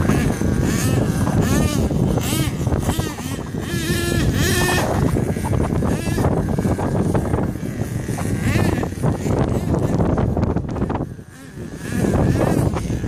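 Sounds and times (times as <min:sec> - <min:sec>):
model truck engine revving: 0:00.0 - 0:10.3
steady low rush: 0:00.0 - 0:11.0.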